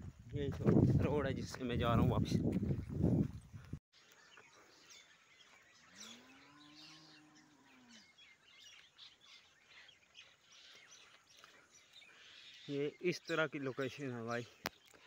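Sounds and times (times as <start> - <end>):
small birds chirping: 3.3 - 15.0
distant cow mooing: 5.9 - 8.2.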